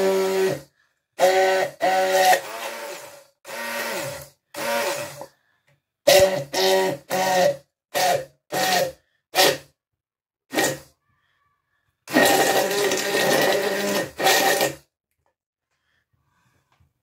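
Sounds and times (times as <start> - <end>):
immersion blender motor whine: 0.0 - 5.3, 6.1 - 8.9, 12.1 - 14.8.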